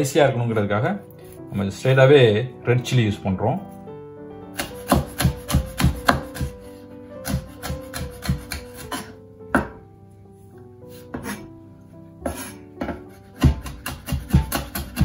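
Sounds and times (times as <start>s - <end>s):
knife chopping on wooden board: 4.5s - 6.6s, 7.2s - 9.8s, 11.1s - 11.5s, 12.2s - 15.0s.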